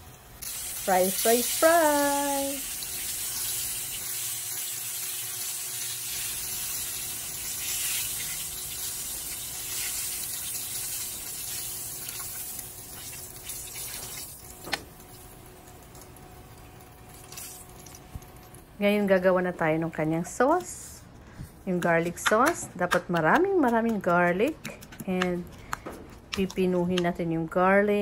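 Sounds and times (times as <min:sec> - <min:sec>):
oil sizzling in a pan: 0:00.0 - 0:18.0.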